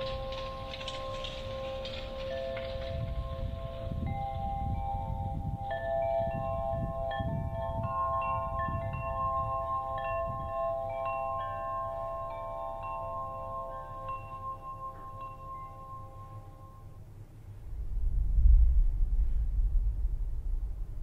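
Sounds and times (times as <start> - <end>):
chimes ringing: 0.0 - 17.0
low rumble: 12.2 - 21.0.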